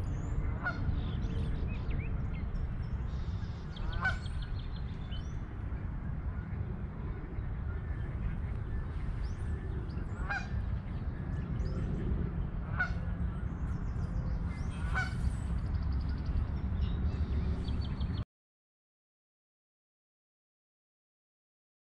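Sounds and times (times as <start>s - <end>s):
steady low rumble: 0.0s - 18.2s
geese honking: 0.6s - 0.8s, 3.8s - 4.4s, 10.2s - 10.5s, 12.7s - 13.0s, 14.7s - 15.3s.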